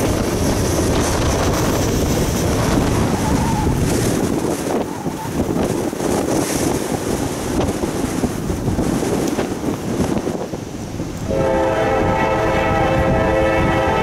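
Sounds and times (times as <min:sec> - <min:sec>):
wind on microphone: 0:00.0 - 0:14.0
locomotive air horn: 0:11.2 - 0:14.0.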